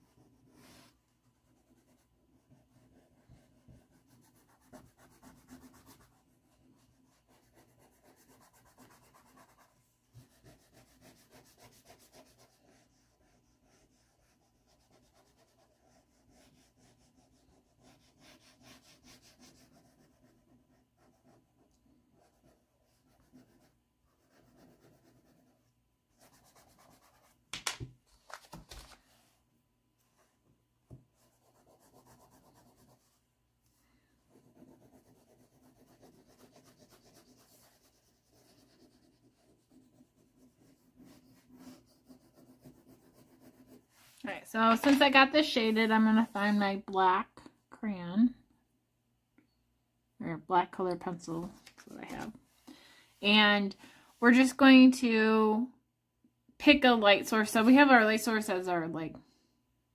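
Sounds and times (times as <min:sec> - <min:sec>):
crayon scratching on paper: 0:00.0 - 0:27.4, 0:31.2 - 0:33.2, 0:34.3 - 0:46.6.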